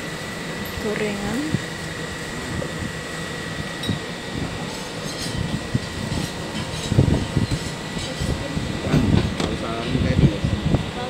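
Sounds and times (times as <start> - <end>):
shop background hum: 0.0 - 11.0.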